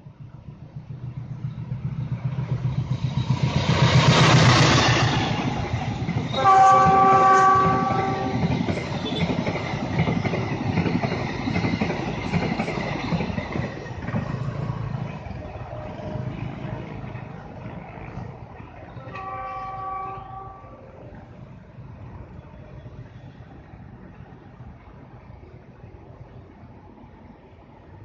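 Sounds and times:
diesel locomotive passing: 0.0 - 28.0
train horn chord: 6.3 - 8.5, 18.9 - 21.0.

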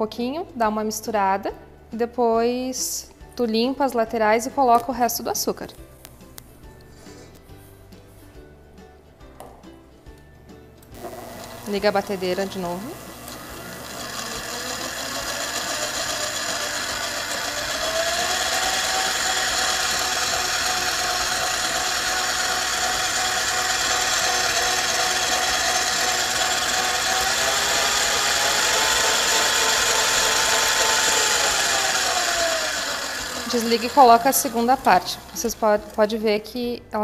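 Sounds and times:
stand mixer motor whine: 11.0 - 36.0.

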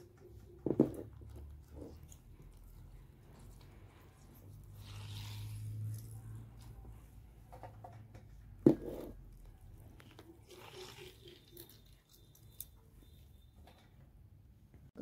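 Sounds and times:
wet mushrooms squishing in bowl: 9.9 - 12.7.

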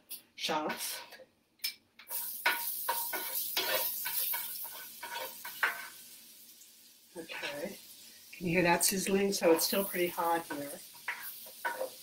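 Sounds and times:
shallots sizzling in a skillet: 2.0 - 12.0
utensil scraping a pan: 2.1 - 6.0, 9.4 - 12.0.

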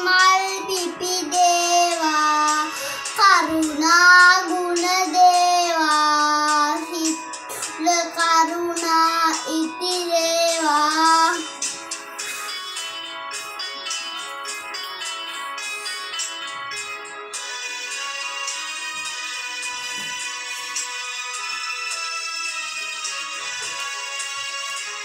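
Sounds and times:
child singing devotional song: 0.0 - 11.6.

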